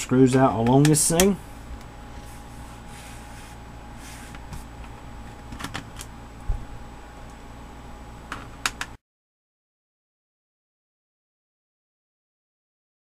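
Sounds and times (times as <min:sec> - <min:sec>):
steady low hum: 0:00.0 - 0:09.0.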